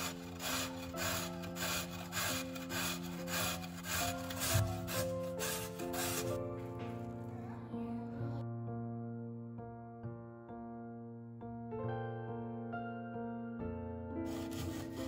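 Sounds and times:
potato grated on metal grater: 0.0 - 6.5, 14.3 - 15.0
soft background music: 0.0 - 15.0.

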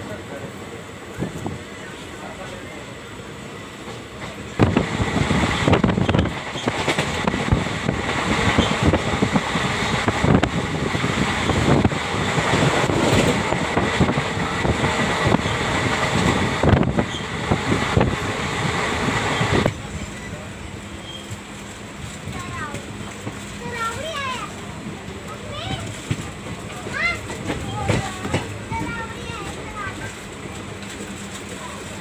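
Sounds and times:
train wheels rushing on rails: 0.0 - 32.0
wind on microphone: 4.6 - 19.8.

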